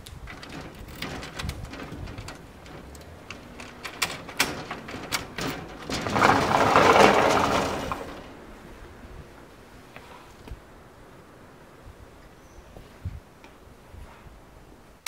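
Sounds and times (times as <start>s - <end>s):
door latch clicking and rattling: 0.1s - 8.3s
sliding door rolling on track: 0.1s - 9.1s.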